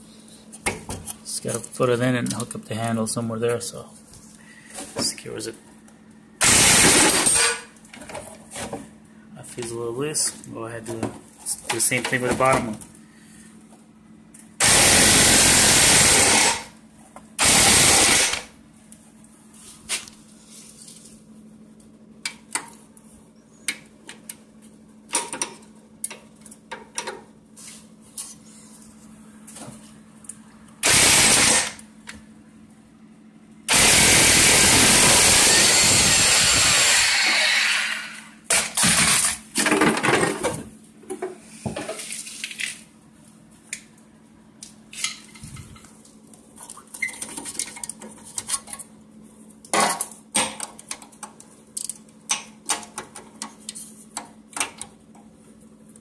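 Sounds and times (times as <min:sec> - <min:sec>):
impact wrench hammering: 0:06.4 - 0:07.7, 0:14.6 - 0:16.7
small metal clicks and knocks: 0:50.4 - 0:54.9.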